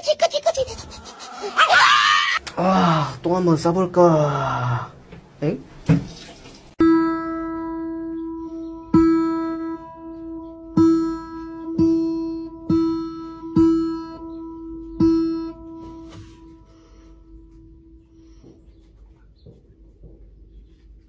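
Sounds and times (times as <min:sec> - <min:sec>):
acoustic guitar string plucked: 0:06.8 - 0:16.7.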